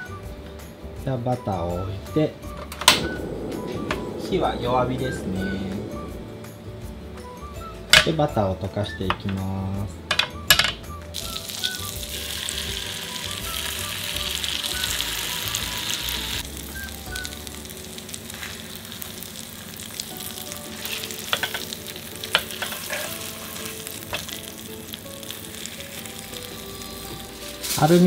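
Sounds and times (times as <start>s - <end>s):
bread sizzling in butter: 11.1s - 28.0s.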